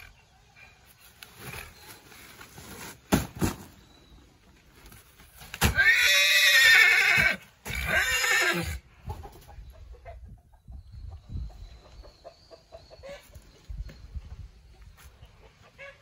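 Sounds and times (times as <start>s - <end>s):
horse whinnying: 5.6s - 8.8s.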